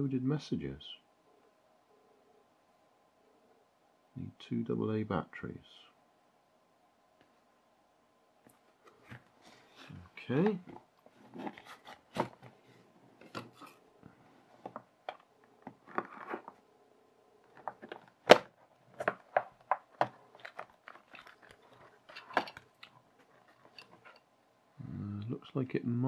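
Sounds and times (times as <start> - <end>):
cardboard box rustling and sliding: 11.1 - 13.8
plastic case clicks and knocks: 17.5 - 21.4.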